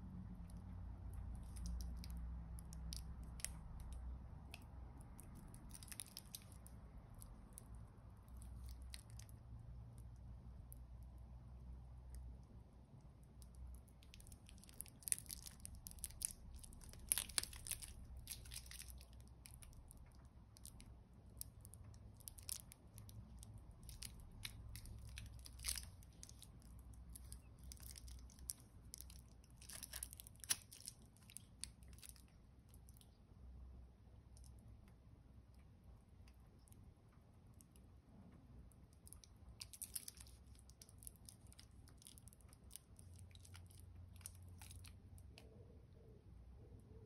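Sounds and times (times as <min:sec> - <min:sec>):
low steady hum: 0:00.0 - 0:47.0
plastic film crinkling: 0:05.2 - 0:07.7, 0:14.0 - 0:33.0, 0:39.0 - 0:45.0.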